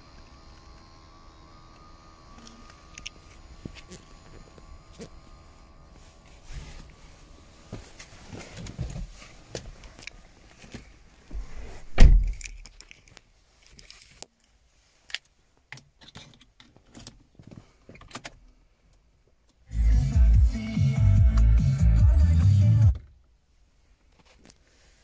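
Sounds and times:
heavy thump: 0:11.3 - 0:12.3.

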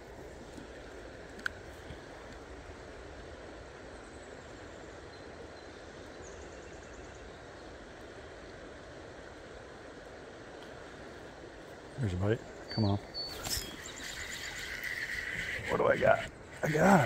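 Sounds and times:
river current rushing: 0:08.2 - 0:17.0.

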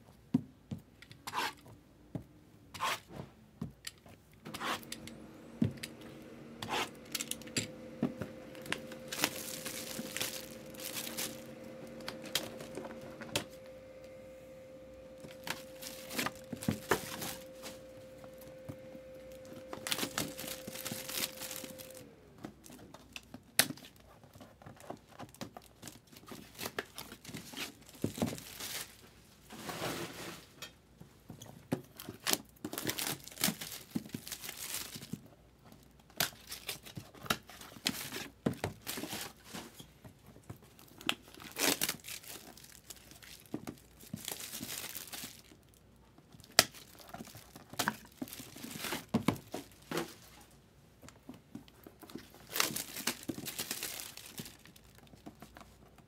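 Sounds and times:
paper rustling and tearing: 0:08.5 - 0:13.6, 0:15.2 - 0:18.5, 0:19.2 - 0:22.0, 0:23.8 - 0:30.5, 0:36.3 - 0:39.7, 0:40.9 - 0:45.6, 0:46.7 - 0:50.3, 0:52.1 - 0:55.7.

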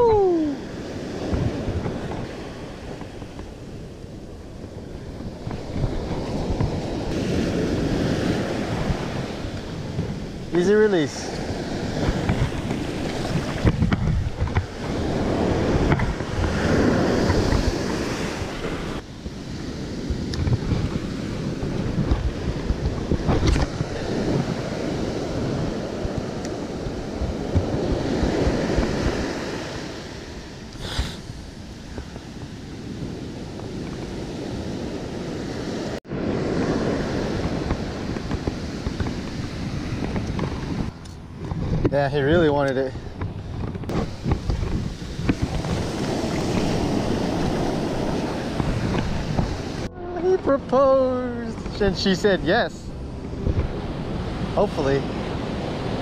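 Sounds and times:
ocean surf breaking on beach: 0:00.0 - 0:56.0
wind buffeting microphone: 0:00.0 - 0:56.0.

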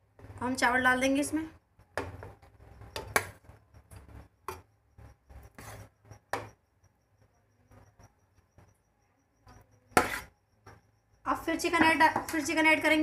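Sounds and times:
spoon scraping and tapping metal: 0:09.5 - 0:10.8.

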